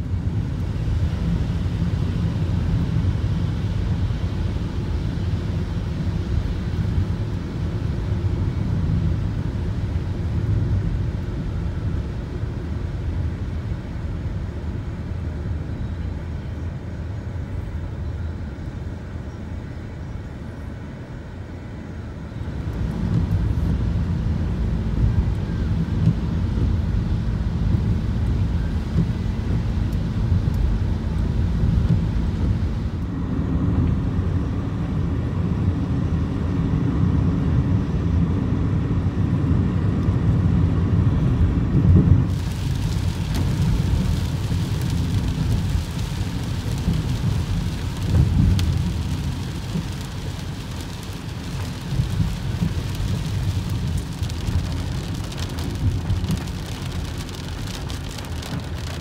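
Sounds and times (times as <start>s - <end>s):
road and engine rumble: 0.0s - 59.0s
rain falling on car: 22.5s - 33.9s, 41.2s - 59.0s.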